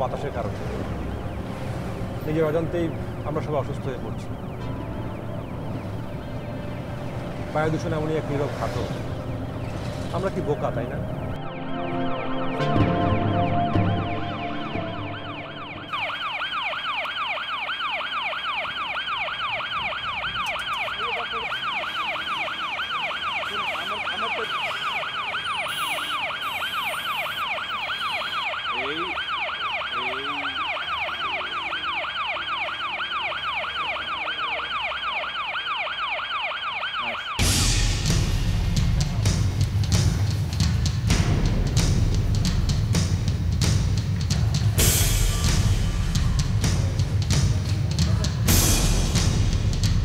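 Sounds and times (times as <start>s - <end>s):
ambulance siren yelping: 0.0s - 38.2s.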